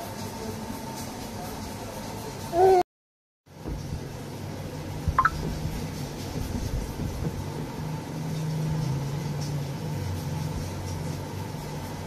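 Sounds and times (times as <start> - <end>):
low mechanical hum: 3.5 - 12.0.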